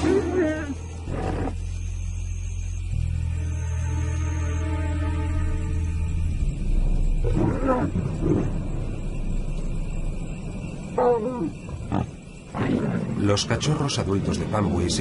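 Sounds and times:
lions growling: 0.0s - 1.6s, 7.2s - 8.6s, 11.0s - 13.9s.

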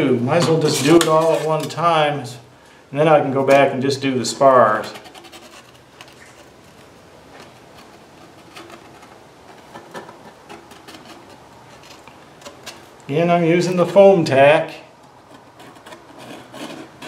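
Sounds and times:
light rubbing of foam: 4.3s - 12.9s.

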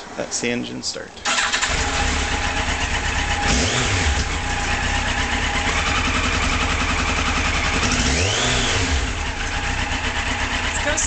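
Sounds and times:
electric starter cranking: 1.2s - 4.4s
motorcycle engine starting and idling: 1.2s - 11.0s.

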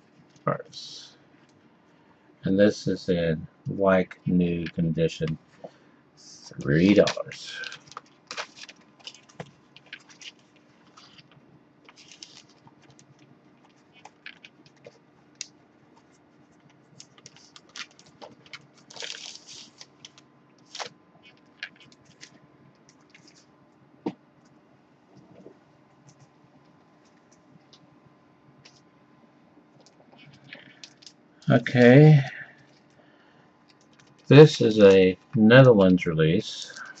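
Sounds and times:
low steady hum: 0.0s - 37.0s
plastic sleeve rustling and scraping: 6.4s - 15.0s, 16.0s - 23.5s, 36.6s - 37.0s.

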